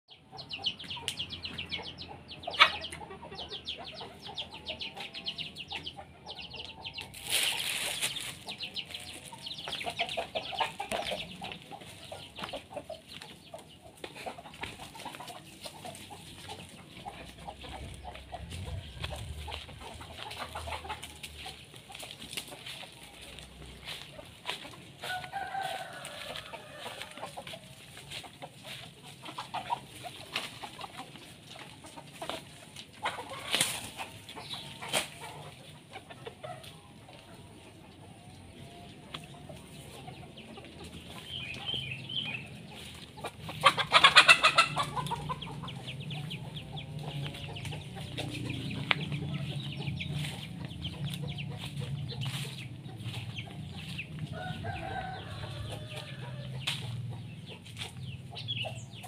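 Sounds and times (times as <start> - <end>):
chickens clucking: 0.1 - 59.0
rooster calling: 25.0 - 27.3.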